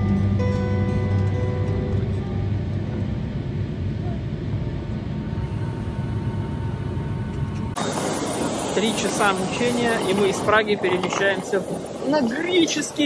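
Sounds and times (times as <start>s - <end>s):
background music: 0.0s - 3.2s
jet airliner cabin rumble: 0.0s - 13.0s.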